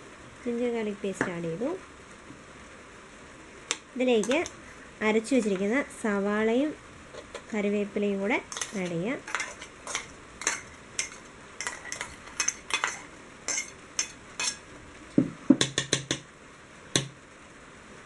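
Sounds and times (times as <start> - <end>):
metal spoon scraping steel jar: 8.5 - 14.6.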